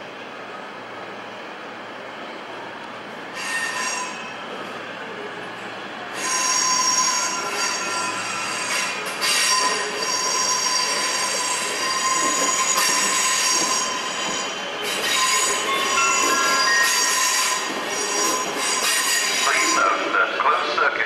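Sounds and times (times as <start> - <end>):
train wheels squealing: 3.3 - 4.5, 6.1 - 20.1.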